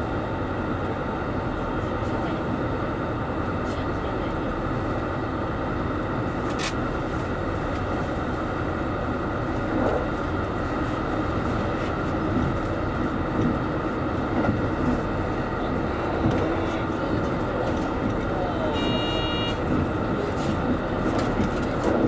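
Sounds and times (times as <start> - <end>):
railcar engine drone: 0.0 - 22.0
wheels on rail: 6.3 - 22.0.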